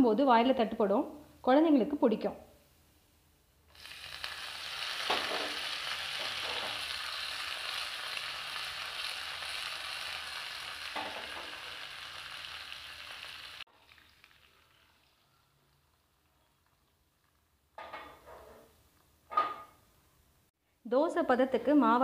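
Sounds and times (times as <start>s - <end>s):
sharp crackles: 3.7s - 17.5s
hot oil sizzling: 3.7s - 18.2s.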